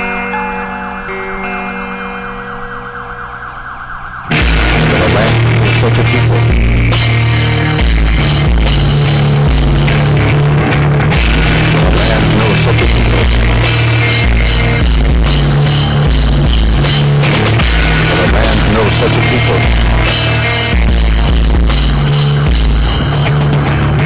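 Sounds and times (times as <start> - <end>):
screamo rock band music: 0.0 - 24.0.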